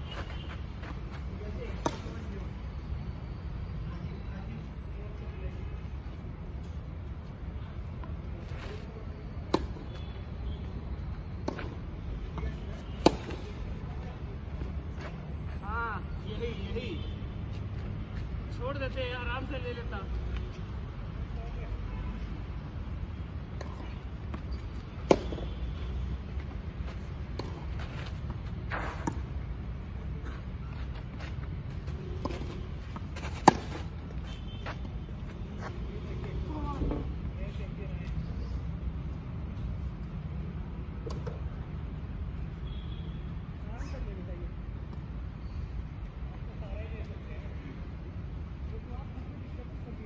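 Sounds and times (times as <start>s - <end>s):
shoes scuffing on clay: 0.0s - 1.4s, 23.8s - 29.4s, 30.0s - 36.2s
racket striking tennis ball: 13.0s - 13.5s, 24.9s - 25.6s, 33.2s - 34.0s
tennis racket hitting ball: 33.2s - 33.9s.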